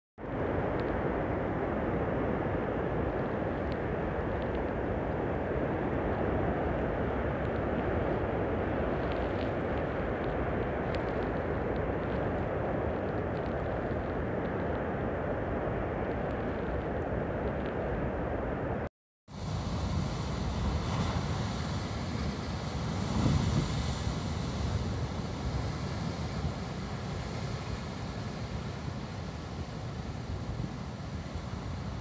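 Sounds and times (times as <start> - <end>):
surf breaking against cliffs: 0.2 - 18.7
wind buffeting microphone: 0.2 - 18.8, 19.8 - 26.8.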